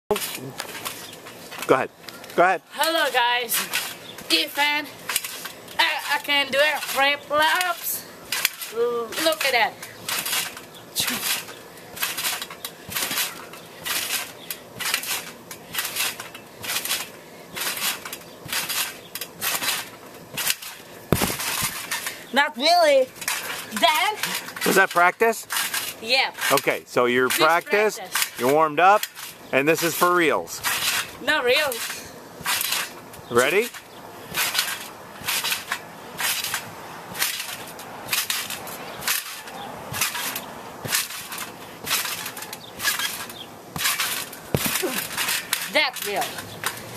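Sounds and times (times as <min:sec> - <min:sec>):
trampoline bouncing: 0:00.1 - 0:46.9
heavy thump: 0:21.1 - 0:21.8, 0:43.8 - 0:45.2.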